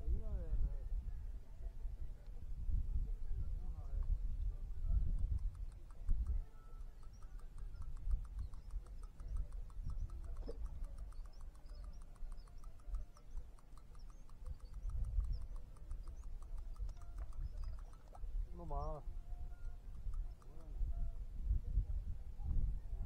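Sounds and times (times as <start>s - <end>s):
wind on microphone: 0.0s - 23.0s
faint high bird chirps: 4.7s - 21.2s.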